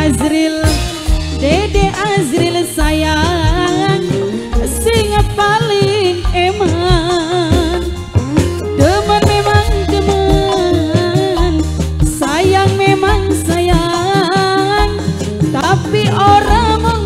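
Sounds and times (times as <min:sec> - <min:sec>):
bass notes: 0:00.0 - 0:17.0
steady drum beat: 0:00.0 - 0:17.0
woman singing ornamented melody: 0:08.7 - 0:17.0.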